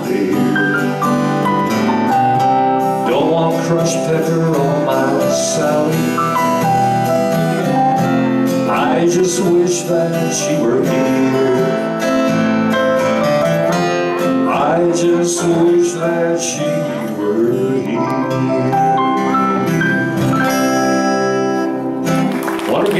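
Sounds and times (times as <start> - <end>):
electric guitar: 0.0 - 22.9
live country band: 0.0 - 22.9
strummed acoustic guitar: 0.0 - 22.9.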